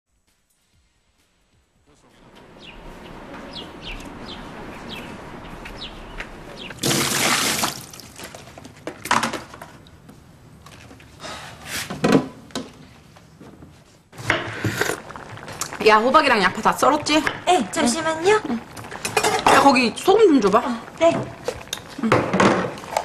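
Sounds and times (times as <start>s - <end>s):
steady background hiss: 0.1s - 23.0s
small birds chirping: 2.0s - 7.6s
water splashing and pouring: 2.2s - 8.6s, 14.2s - 23.0s.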